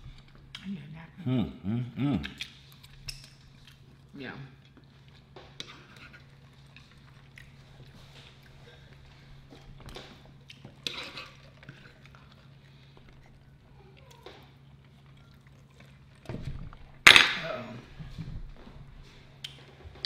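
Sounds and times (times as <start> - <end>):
quiet chewing: 0.0 - 0.8, 2.2 - 17.0, 17.9 - 20.0
tableware clinking: 17.1 - 17.8.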